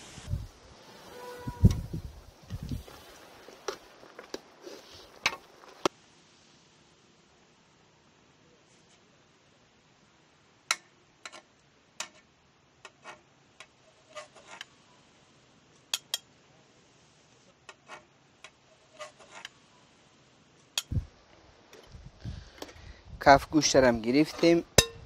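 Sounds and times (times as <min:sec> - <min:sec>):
ladle clinking on pot: 0:24.8 - 0:25.0.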